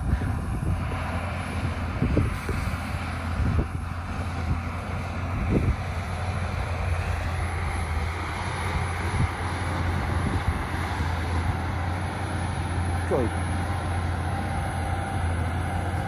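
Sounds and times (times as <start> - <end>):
wind buffeting microphone: 0.0 - 12.2
heavy machinery engine hum: 0.0 - 16.0.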